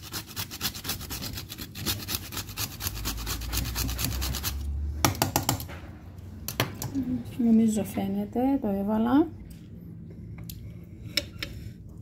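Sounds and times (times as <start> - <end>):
nutmeg rasping on metal grater: 0.0 - 4.6.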